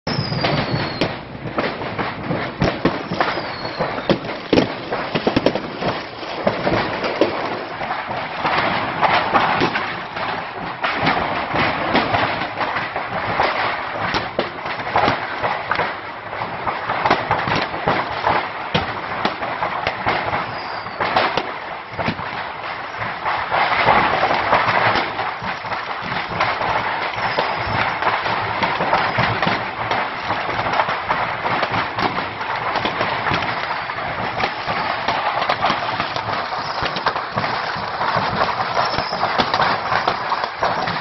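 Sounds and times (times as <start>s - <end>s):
continuous crackling fire: 0.0s - 41.0s
fireworks bangs and crackles: 0.0s - 41.0s
falling whistles: 0.1s - 1.1s, 3.0s - 4.2s, 20.4s - 21.1s, 27.2s - 27.8s, 36.6s - 37.0s, 38.6s - 39.4s.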